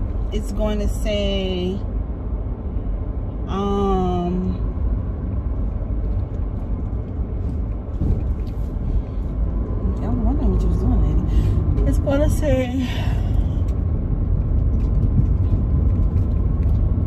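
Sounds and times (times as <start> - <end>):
car cabin road rumble: 0.0 - 17.0.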